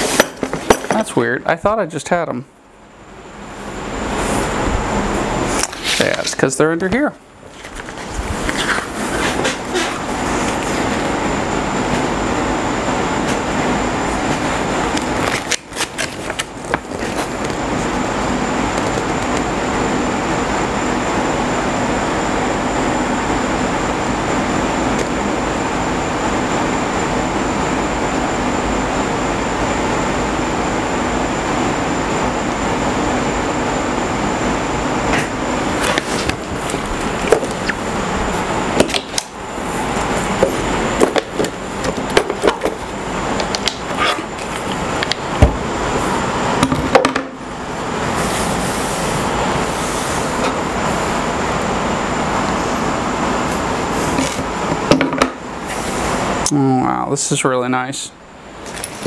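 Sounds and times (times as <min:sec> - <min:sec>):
loud steady rushing noise: 0:02.9 - 0:07.4
clicks and knocks of handled parts: 0:58.6 - 0:59.0.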